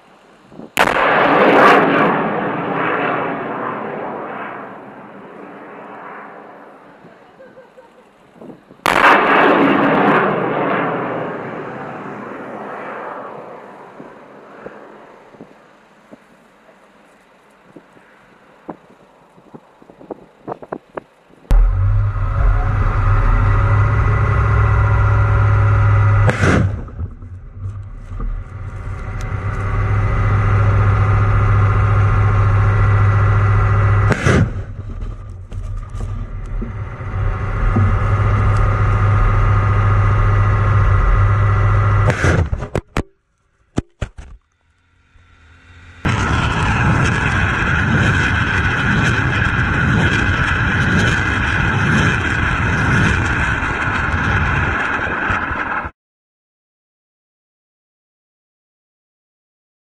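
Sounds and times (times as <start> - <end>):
wind noise: 0.4 - 0.8, 8.3 - 9.0, 17.6 - 42.9, 46.0 - 55.9
rocket launch blasts: 0.6 - 6.8, 8.8 - 15.2, 21.5 - 43.1, 45.9 - 55.9
diesel engine running: 21.5 - 43.0, 44.5 - 55.9.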